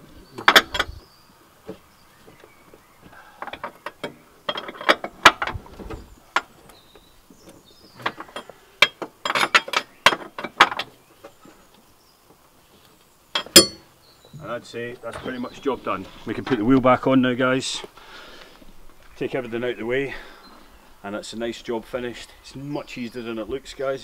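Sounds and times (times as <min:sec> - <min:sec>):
spanner clicking on metal nut: 0:13.4 - 0:13.8.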